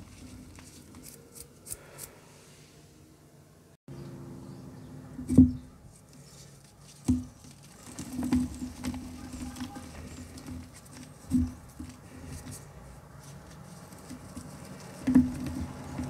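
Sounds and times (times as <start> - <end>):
soft patter of chalk: 5.8 - 16.0.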